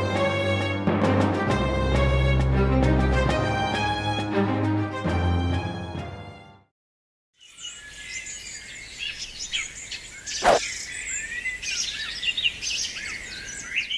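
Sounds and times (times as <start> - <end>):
background music: 0.0 - 6.7
birds chirping and whistling: 7.4 - 13.9.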